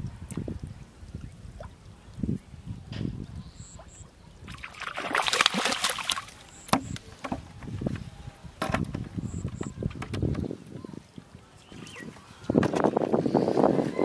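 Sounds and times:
water splashing and sloshing: 0.0 - 13.9.

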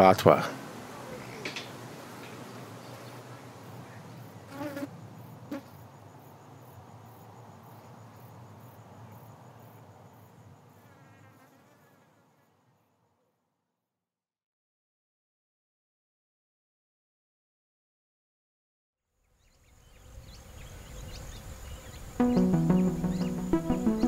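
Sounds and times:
insects buzzing: 0.6 - 13.2, 19.4 - 24.0.

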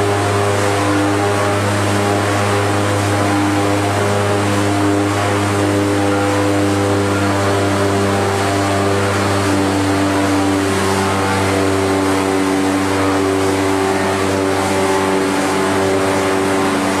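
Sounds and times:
production line machinery hum: 0.0 - 17.0.

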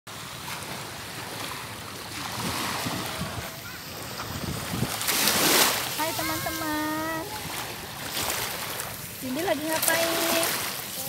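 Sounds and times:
small waves washing on sand: 0.1 - 11.0
wind buffeting microphone: 2.1 - 10.8.

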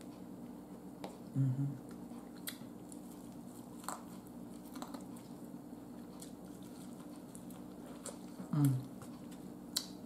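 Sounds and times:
steady low hum: 0.0 - 10.0
biting and chewing corn: 2.2 - 10.0.

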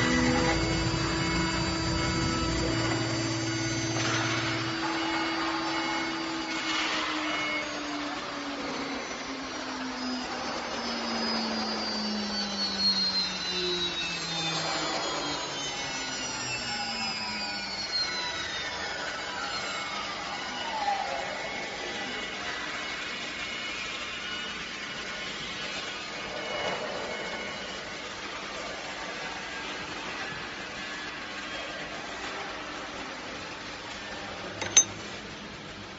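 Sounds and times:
low hum: 0.0 - 6.5
router milling steel with motor whine: 0.0 - 35.6.

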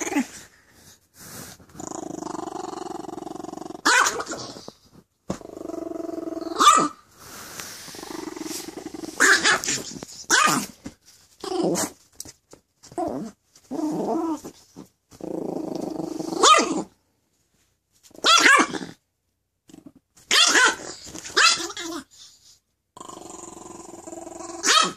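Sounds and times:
small dog growling: 0.0 - 0.5, 1.7 - 6.7, 7.9 - 10.6, 11.4 - 12.0, 13.0 - 14.5, 15.2 - 17.0, 23.0 - 24.7
small dog yapping and snarling: 3.7 - 4.7, 8.1 - 10.8, 18.1 - 19.0, 20.2 - 22.2, 24.5 - 24.9.

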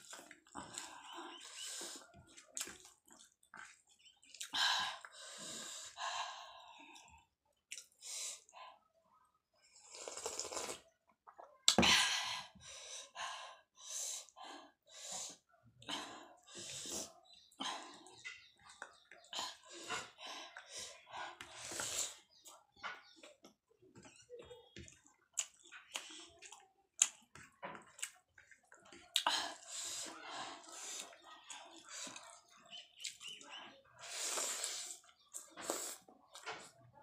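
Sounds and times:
slurping broth: 9.8 - 10.8, 34.0 - 36.1
wet chewing: 24.8 - 29.4.

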